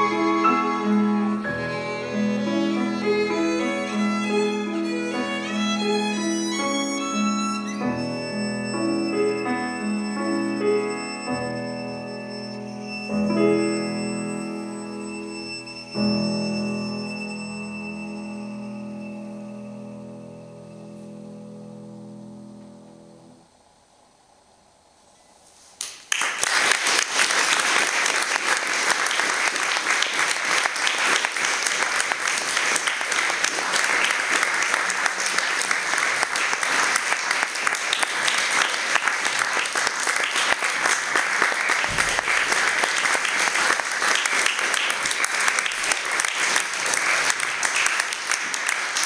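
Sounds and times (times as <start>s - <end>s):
audience applause: 25.9s - 49.0s.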